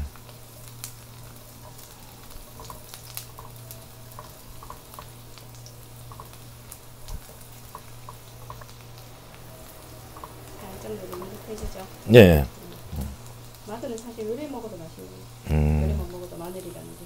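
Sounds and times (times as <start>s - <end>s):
oil popping and crackling: 0.0s - 11.9s
garlic sizzling in frying pan: 0.0s - 17.0s.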